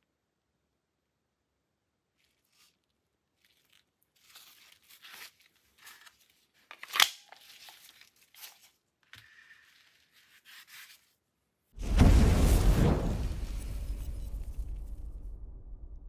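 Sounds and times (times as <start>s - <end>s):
gloves rustling: 2.1s - 11.6s.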